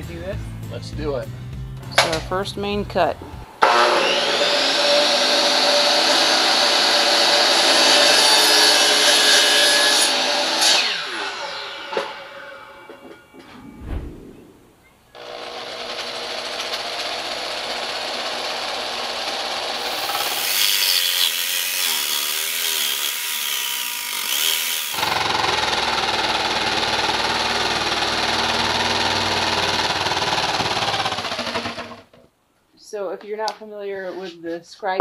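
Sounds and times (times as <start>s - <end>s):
jigsaw cutting vinyl plank: 15.2s - 32.1s.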